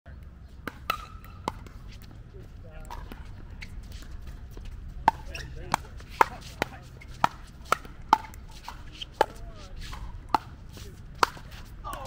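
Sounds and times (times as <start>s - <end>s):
ball bouncing on court: 0.6s - 2.1s.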